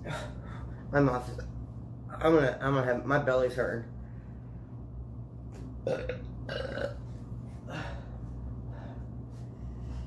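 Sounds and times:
man belching: 0:05.8 - 0:07.0.

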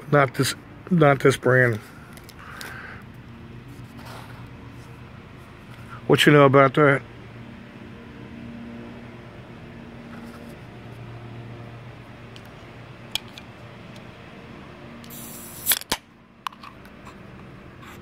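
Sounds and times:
can gas hiss: 0:15.0 - 0:15.9
can tab cracking: 0:15.0 - 0:16.7.

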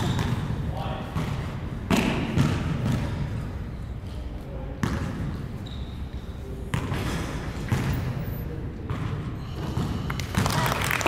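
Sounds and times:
basketball bouncing on indoor court: 0:00.0 - 0:03.9, 0:04.7 - 0:10.7.

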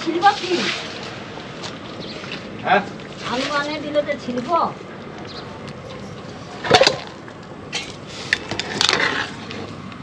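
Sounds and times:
metal ladle scraping a pan: 0:07.7 - 0:09.7.

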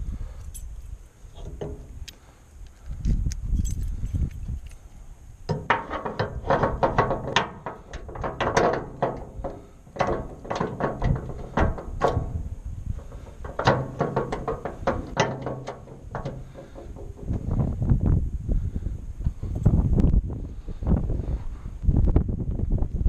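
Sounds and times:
metallic clanking and rattling: 0:05.5 - 0:17.8.

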